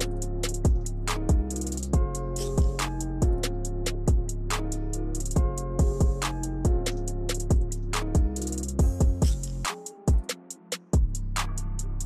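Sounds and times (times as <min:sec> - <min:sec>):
deep kick drum: 0:00.0 - 0:04.5, 0:05.3 - 0:10.3, 0:11.0 - 0:11.2
bass and synth chords: 0:00.0 - 0:09.7, 0:11.0 - 0:12.0
hi-hat and snare hits: 0:00.0 - 0:12.0.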